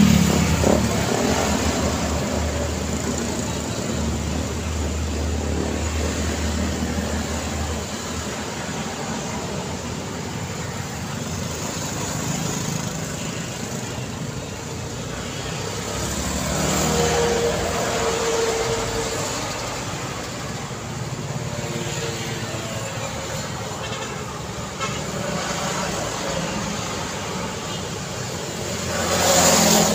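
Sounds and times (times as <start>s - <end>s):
loud vehicle passing: 0.0s - 7.8s, 15.3s - 20.4s, 28.6s - 29.9s
motor scooters passing: 0.0s - 29.9s.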